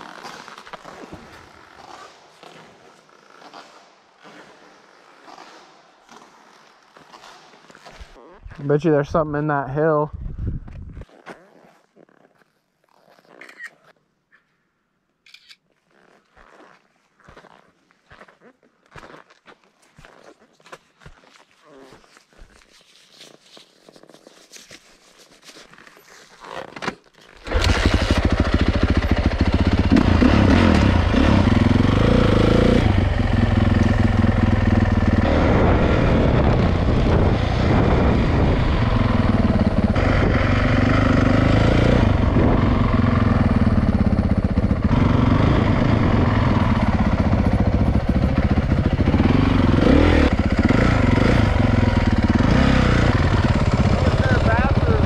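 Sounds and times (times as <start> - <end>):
faint rustling handling noise: 15.7 - 26.7
dirt bike engine revving: 27.4 - 55.0.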